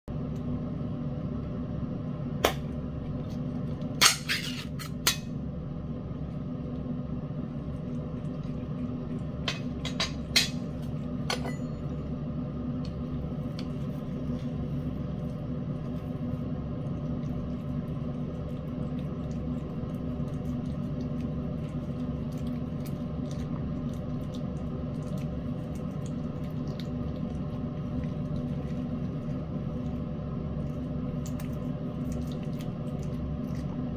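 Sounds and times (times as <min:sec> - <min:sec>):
steady low hum: 0:00.0 - 0:33.9.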